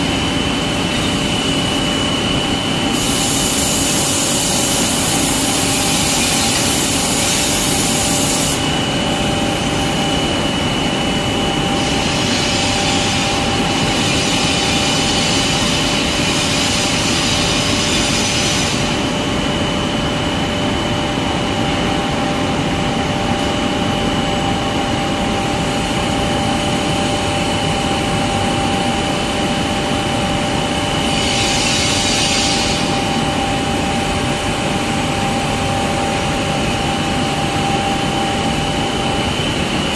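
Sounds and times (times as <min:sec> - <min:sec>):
machinery humming: 0:00.0 - 0:39.9
high hiss bursts: 0:02.9 - 0:08.7.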